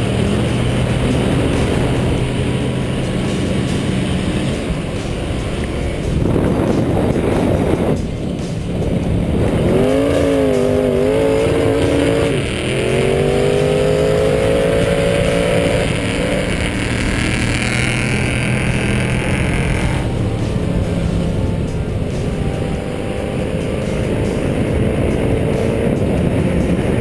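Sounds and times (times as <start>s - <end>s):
pickup truck engine revving hard: 9.3s - 20.2s.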